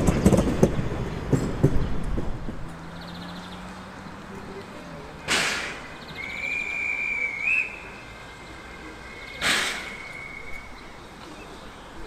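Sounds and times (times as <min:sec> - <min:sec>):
steam hiss bursts: 0:05.2 - 0:10.8
high steady whistle: 0:06.2 - 0:08.2, 0:08.9 - 0:10.9.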